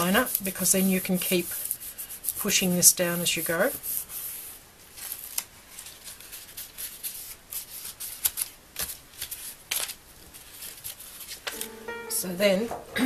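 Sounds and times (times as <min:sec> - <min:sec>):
paper rustling and crackling: 0:04.9 - 0:11.6.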